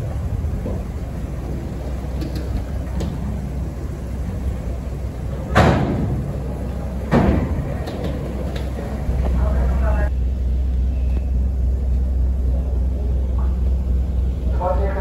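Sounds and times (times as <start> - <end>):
ferry engines rumbling: 0.0 - 15.0
heavy metal ramp clanks: 5.2 - 8.6.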